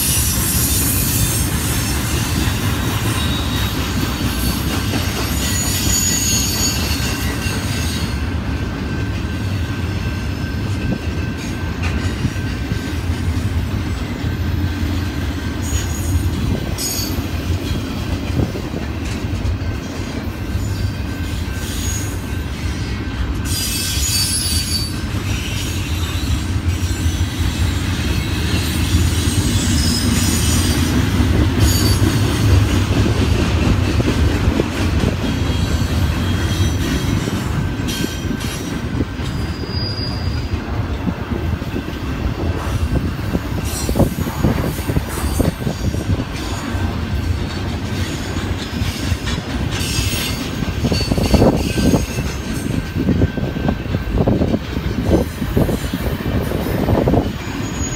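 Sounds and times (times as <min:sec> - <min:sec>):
train rumbling on rails: 0:00.0 - 0:57.9
high-pitched wheel squeal: 0:05.0 - 0:08.2, 0:23.4 - 0:30.8, 0:31.6 - 0:32.2, 0:39.3 - 0:40.5, 0:57.1 - 0:57.9.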